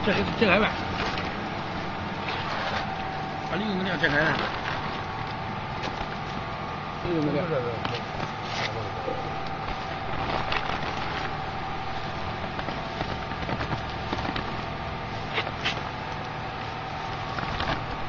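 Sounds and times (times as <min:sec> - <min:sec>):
steady machine hum: 0:00.0 - 0:18.0
plastic bag crinkling: 0:02.2 - 0:06.5, 0:08.0 - 0:18.0.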